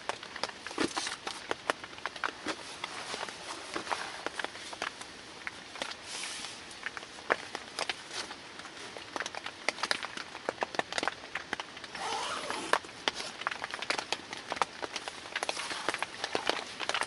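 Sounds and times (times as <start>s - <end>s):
nylon tent door rustling: 2.3s - 4.8s, 11.9s - 13.4s.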